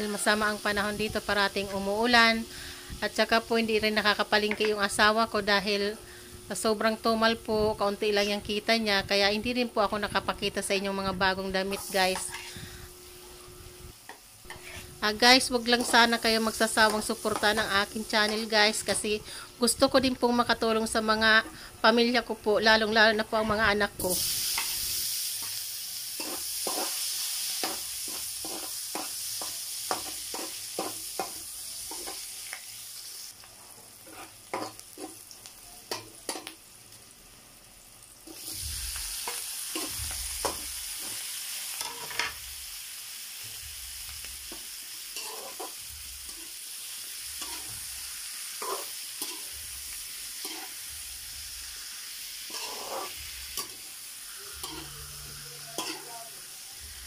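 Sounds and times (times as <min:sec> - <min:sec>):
oil sizzling in a wok: 0:00.0 - 0:57.0
metal spatula scraping a pan: 0:11.8 - 0:12.6, 0:14.5 - 0:17.6, 0:34.0 - 0:35.2, 0:45.2 - 0:46.6, 0:47.4 - 0:47.9, 0:48.5 - 0:49.6, 0:50.4 - 0:50.8, 0:52.5 - 0:56.2.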